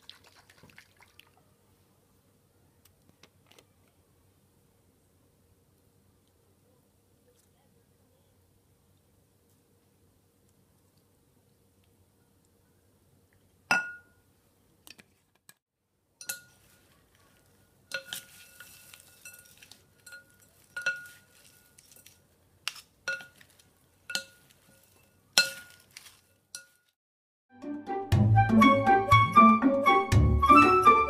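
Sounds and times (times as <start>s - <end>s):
sharp clink against glass: 13.7s - 14.2s, 16.2s - 16.6s
salad rustling: 16.4s - 26.9s
wooden spoons knocking glass bowl: 24.1s - 24.4s.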